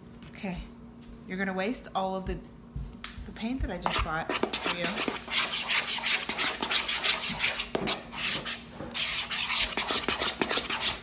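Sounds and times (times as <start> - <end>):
spatula scraping slime in plastic bowl: 3.8 - 11.0.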